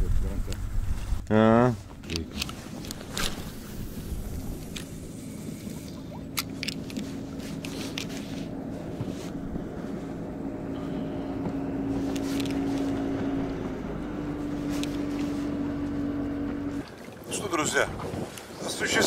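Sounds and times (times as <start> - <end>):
outboard motor droning: 0.0 - 19.0.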